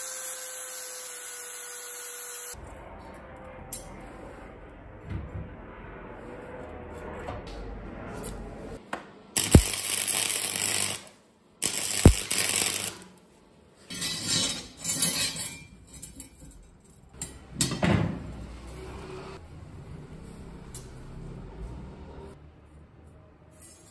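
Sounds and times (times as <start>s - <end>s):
welding arc crackling and hissing: 9.4s - 13.2s.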